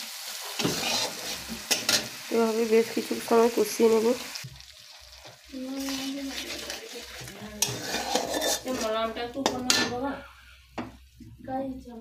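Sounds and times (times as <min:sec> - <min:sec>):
metal spatula scraping pan: 0:00.5 - 0:02.1, 0:05.1 - 0:10.7.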